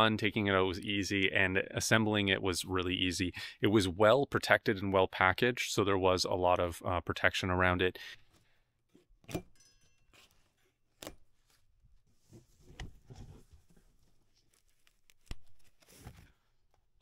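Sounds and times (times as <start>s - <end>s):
cardboard box rustling and scraping: 12.1s - 14.4s.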